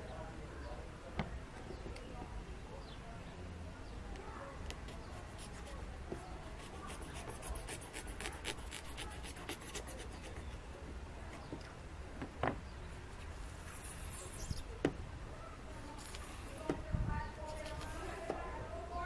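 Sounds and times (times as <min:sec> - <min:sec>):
craft knife cutting foam: 0:04.8 - 0:10.6.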